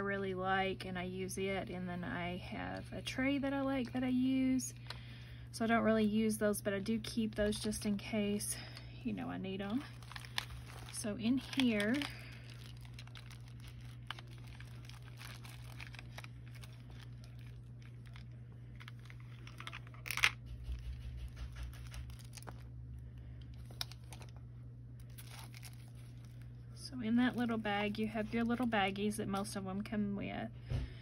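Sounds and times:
steady low hum: 0.0 - 31.0
plastic wrappings crinkling: 6.6 - 29.1
cloth bag rustling: 9.6 - 21.0.

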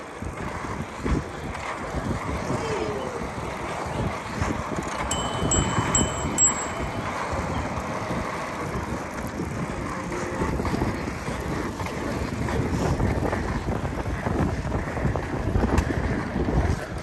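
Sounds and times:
wind buffeting microphone: 0.0 - 17.0
high bell-like pings: 5.1 - 8.1.

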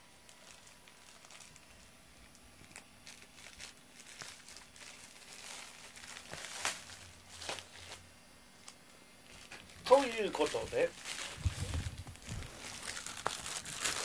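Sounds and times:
rustling and crinkling: 0.2 - 14.0.

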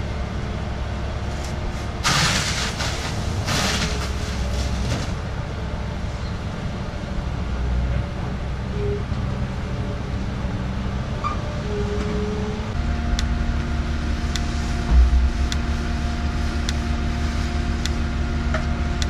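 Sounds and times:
farm machinery engine running: 9.5 - 19.0
low thump: 14.8 - 17.3.

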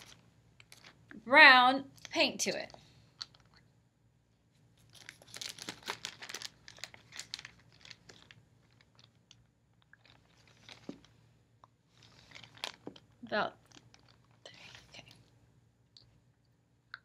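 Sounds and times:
plastic bag crinkling: 0.0 - 1.0, 4.8 - 11.1, 11.9 - 15.2.

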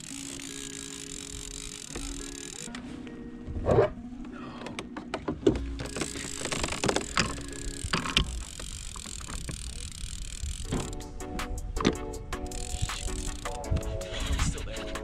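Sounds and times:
spinning reel being wound: 0.0 - 2.7, 5.8 - 11.2, 11.8 - 15.0.

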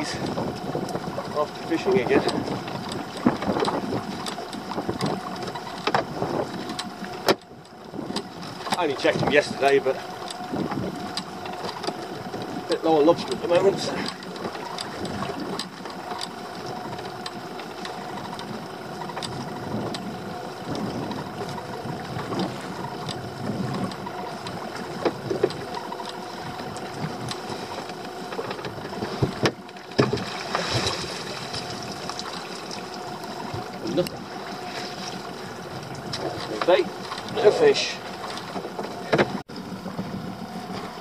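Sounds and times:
boat engine idling: 0.0 - 41.0
water splashing: 7.8 - 39.5.

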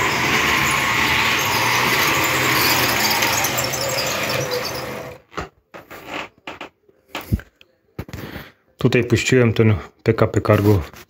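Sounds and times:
model train motor whir: 0.0 - 5.2.

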